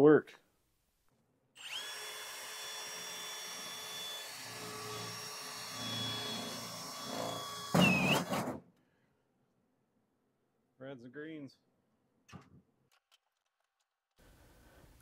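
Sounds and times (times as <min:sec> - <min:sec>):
cordless drill whining on sheet metal: 0:01.6 - 0:08.6.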